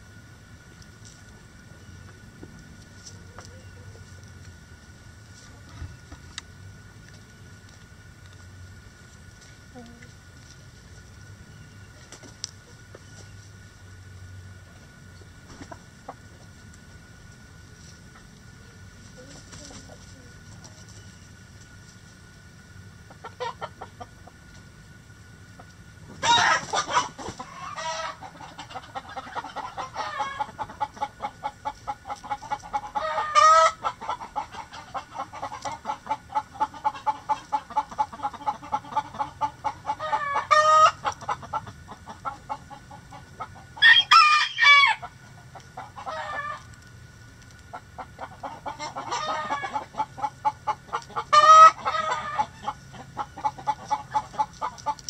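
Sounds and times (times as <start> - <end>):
chickens clucking: 0.0 - 55.0
loud chicken call: 26.2 - 30.6, 32.9 - 34.2, 39.9 - 41.1, 43.8 - 45.1, 46.0 - 46.6, 48.7 - 50.0, 51.2 - 52.7.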